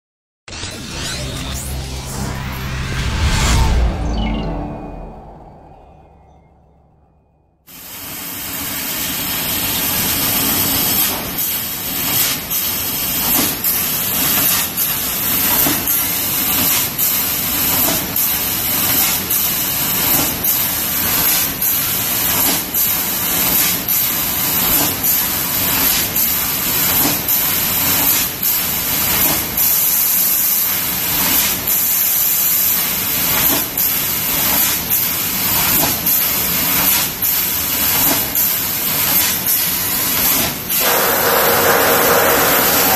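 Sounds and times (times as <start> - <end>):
laser cutter hissing: 40.7 - 42.9.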